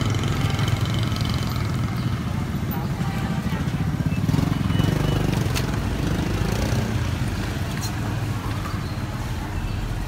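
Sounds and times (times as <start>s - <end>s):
motorbike engine running: 0.0s - 7.0s
street traffic: 0.0s - 10.0s.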